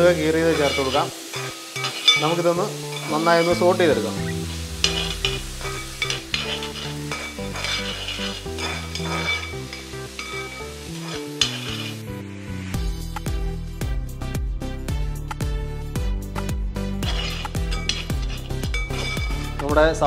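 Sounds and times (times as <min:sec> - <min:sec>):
steel spoon scraping pan: 0:00.0 - 0:12.9, 0:17.0 - 0:19.7
onions sizzling in hot oil: 0:00.0 - 0:13.4, 0:17.0 - 0:20.0
soft background music: 0:00.0 - 0:20.0.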